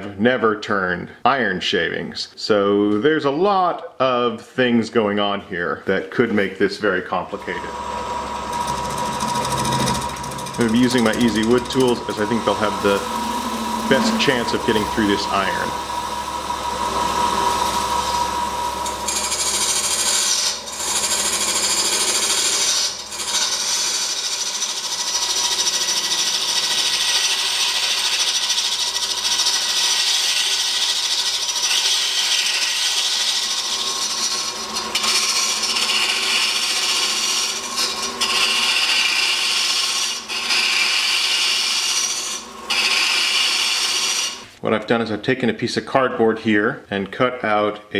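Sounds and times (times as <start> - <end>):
lathe tool hissing cut: 7.4 - 44.6.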